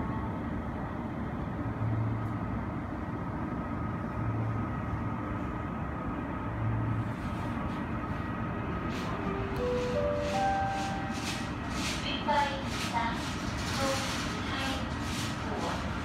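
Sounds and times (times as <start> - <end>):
airport apron rumble: 7.0 - 16.0
thin high whine: 9.0 - 11.8.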